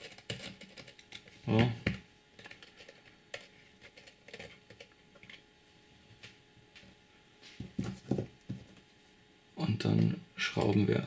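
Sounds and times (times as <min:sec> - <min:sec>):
fingers clicking and tapping wire: 0:00.0 - 0:01.2.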